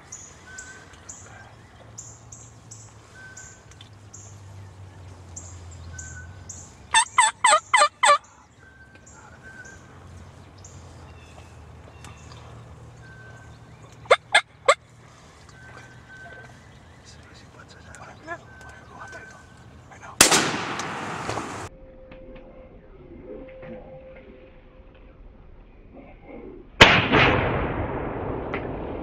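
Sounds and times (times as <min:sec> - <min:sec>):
turkeys gobbling: 0:06.0 - 0:10.0, 0:11.3 - 0:16.6.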